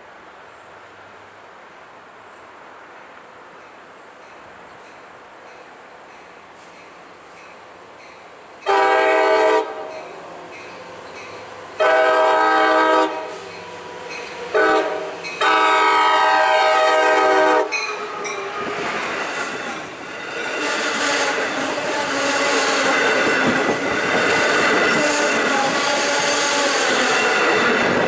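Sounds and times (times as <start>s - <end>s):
train horn blasts: 8.6s - 10.1s, 11.8s - 18.9s, 20.5s - 23.0s
train wheels rumbling and clattering: 12.8s - 28.0s.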